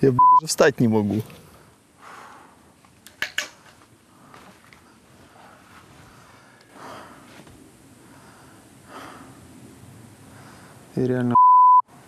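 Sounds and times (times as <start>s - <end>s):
man breathing heavily and sighing: 1.8s - 2.8s, 4.0s - 9.6s.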